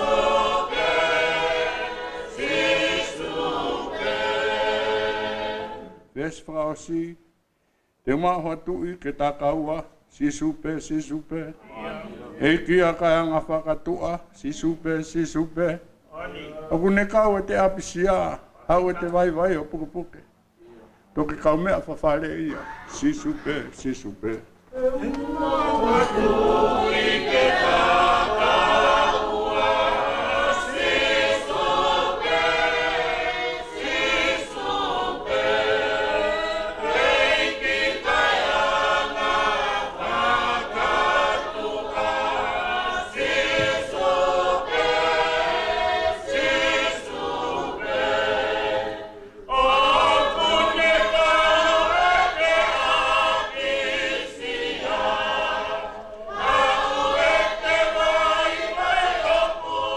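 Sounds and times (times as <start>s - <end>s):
congregation singing a hymn: 0.0s - 7.1s, 24.8s - 59.9s.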